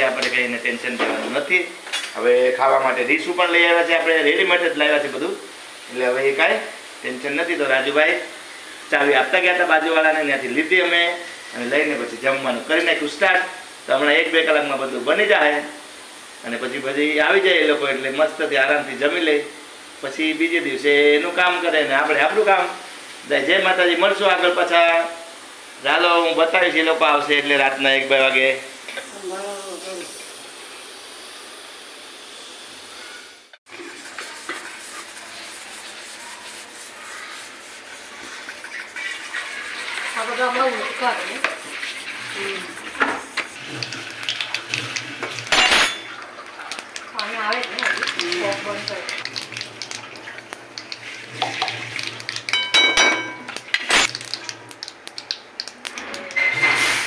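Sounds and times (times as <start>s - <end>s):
hot oil sizzling: 0.0s - 57.0s
mustard seeds popping in oil: 46.2s - 56.5s.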